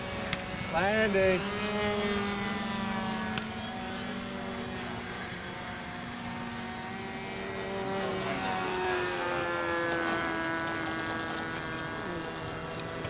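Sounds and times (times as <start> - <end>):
model airplane engines droning: 0.0 - 13.0.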